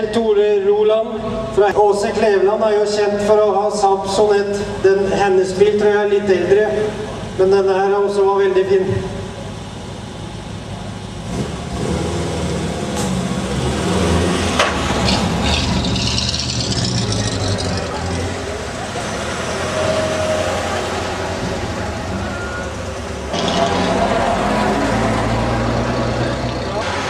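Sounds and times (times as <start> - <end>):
people talking: 0.0 - 9.6
car engines idling: 0.3 - 27.0.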